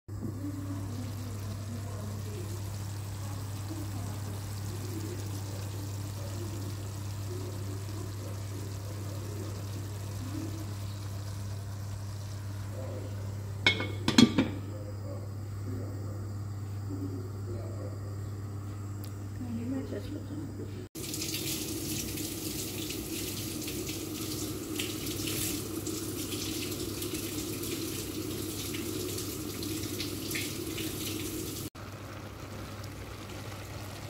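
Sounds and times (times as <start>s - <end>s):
liquid bubbling in pots: 0.1s - 15.4s, 20.8s - 34.0s
metal spoon clinking on pot: 13.7s - 14.5s.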